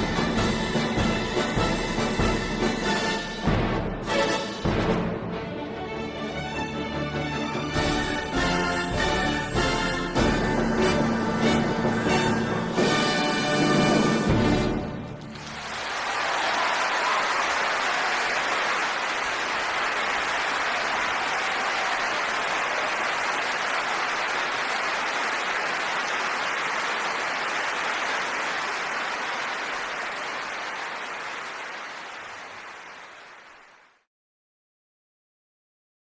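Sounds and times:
crowd applauding: 15.0 - 34.1.

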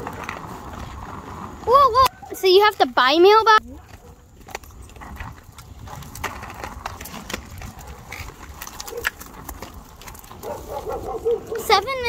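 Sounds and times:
skate wheels rolling on concrete: 0.0 - 12.0.

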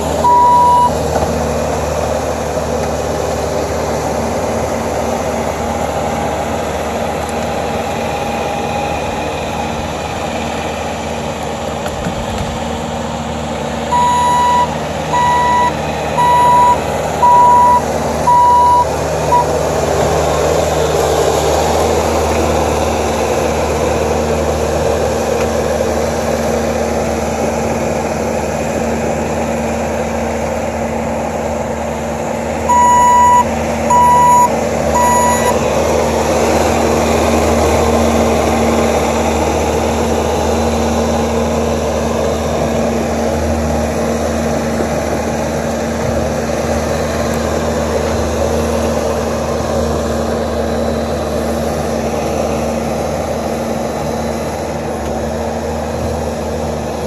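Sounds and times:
diesel engine running: 0.0 - 57.0
backup alarm beeping: 0.2 - 1.0, 13.9 - 19.5, 32.7 - 35.6.

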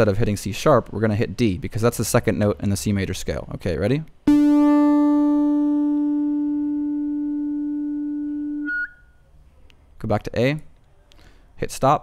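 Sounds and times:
synthesizer note: 4.3 - 8.9.

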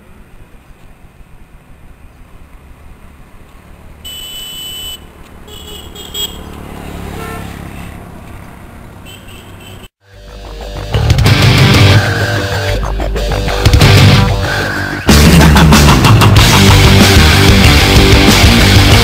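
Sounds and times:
road traffic rumbling: 0.0 - 19.0
car horn: 4.0 - 8.0, 9.0 - 10.0.

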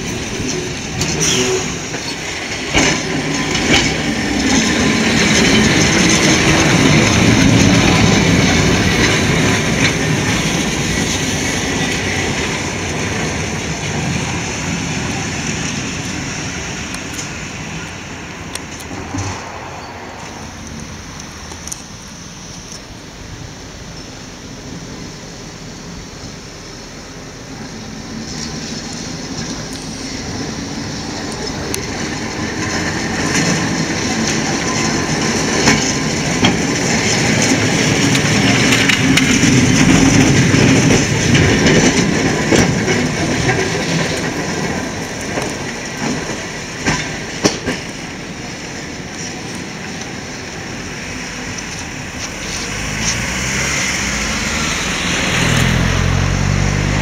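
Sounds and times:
sharp clicks from wheels: 0.0 - 22.9, 28.2 - 55.8
tram wheels rumbling on rails: 0.0 - 57.0
car approaching: 17.8 - 23.7, 47.3 - 57.0.

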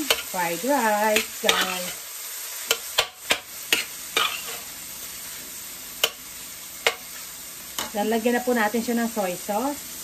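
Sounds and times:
frying sizzle: 0.0 - 10.0
metal spatula clacking on pan: 1.2 - 1.9, 2.7 - 4.6, 6.0 - 6.2, 6.8 - 7.0.

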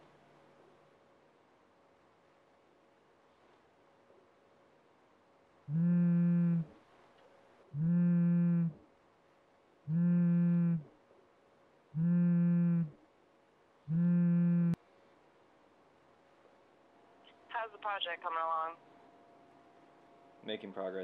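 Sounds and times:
phone vibrating on desk: 5.7 - 6.8, 7.8 - 8.8, 9.9 - 10.9, 12.0 - 13.0, 13.9 - 14.8.

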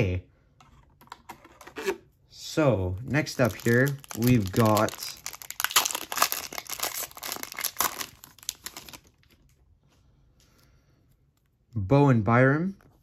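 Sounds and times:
foil wrapper tearing and crinkling: 3.1 - 9.3.

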